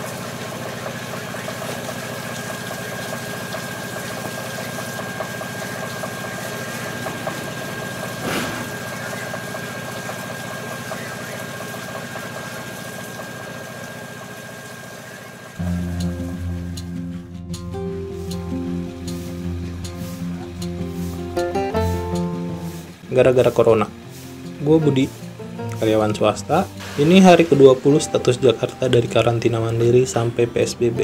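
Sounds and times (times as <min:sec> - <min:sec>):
machine hum: 0:00.0 - 0:23.2
short burst of noise: 0:06.5 - 0:09.4.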